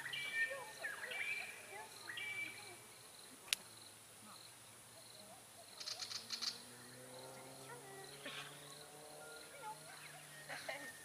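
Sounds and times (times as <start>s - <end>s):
birds calling: 0.0s - 11.0s
insects chirping: 0.0s - 11.0s.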